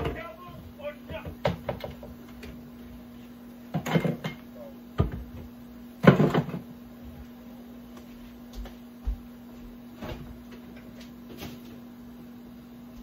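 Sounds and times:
steady low hum: 0:00.0 - 0:13.0
cupboard doors knocking and rattling: 0:01.1 - 0:02.2.

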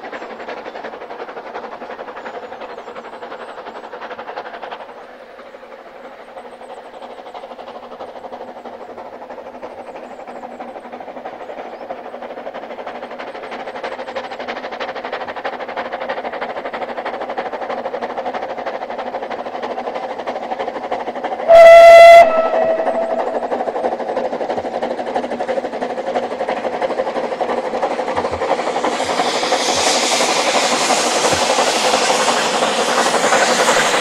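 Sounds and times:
exhaust steam hissing: 0:21.4 - 0:34.0
steam whistle blast: 0:21.5 - 0:23.3.

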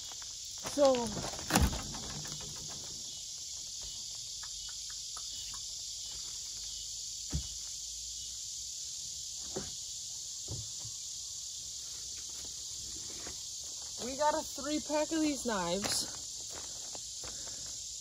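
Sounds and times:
insects chorus: 0:00.0 - 0:18.0
knocks in wooden shed: 0:01.1 - 0:04.0, 0:07.2 - 0:07.8, 0:09.4 - 0:09.8, 0:10.4 - 0:11.0.

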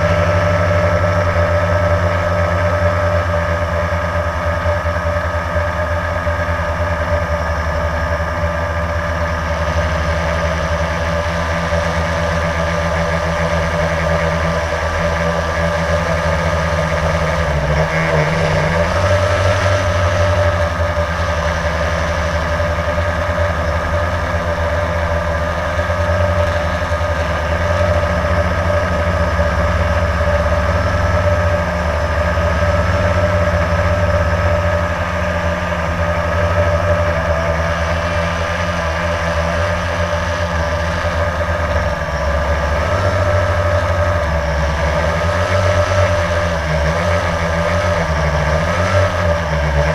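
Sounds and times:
drone propellers buzzing: 0:00.0 - 0:49.9.

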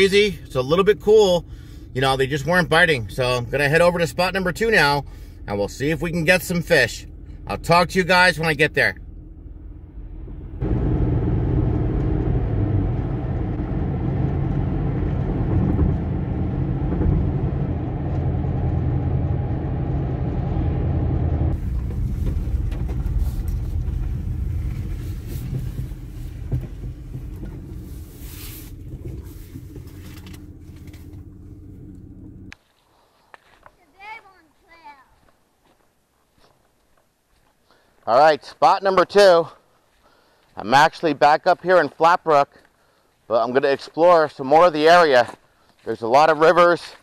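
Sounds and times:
car road noise rumble: 0:00.0 - 0:32.6.

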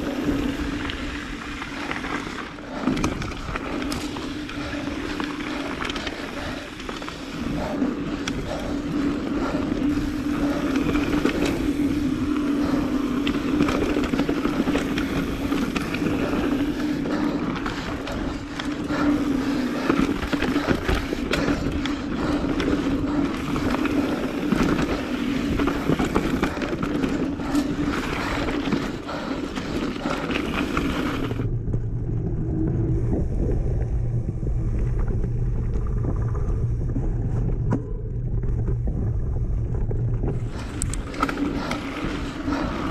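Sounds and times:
bike rattling and knocking: 0:00.0 - 0:31.5
bike tyres rolling on dirt: 0:00.0 - 0:42.9
steady hum: 0:00.0 - 0:42.9.

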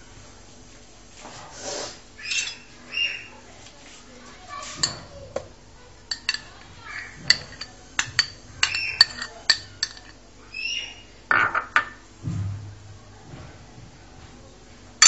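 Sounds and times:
utensils and bowl clinking: 0:02.2 - 0:02.8, 0:04.6 - 0:05.2, 0:06.0 - 0:10.2.

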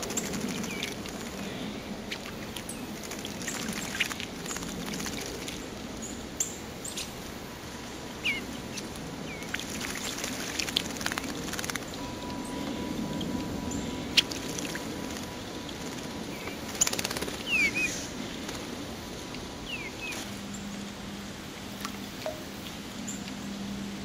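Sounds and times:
wing flutters: 0:00.0 - 0:05.8, 0:08.7 - 0:12.0, 0:13.2 - 0:20.5
birds splashing in water: 0:00.0 - 0:20.4
low background rumble: 0:00.0 - 0:24.0
bird chirps: 0:16.3 - 0:18.0.

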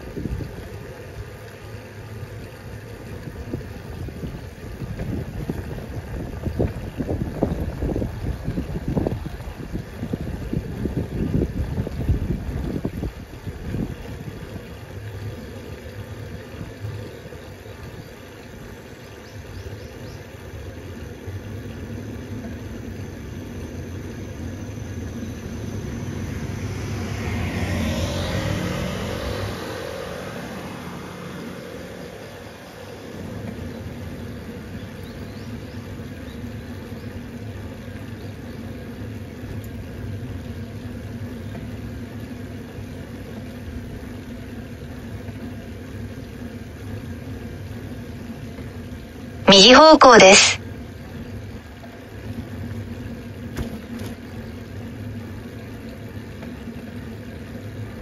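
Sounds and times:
car engine and road noise: 0:20.8 - 0:49.4, 0:50.9 - 0:58.0.

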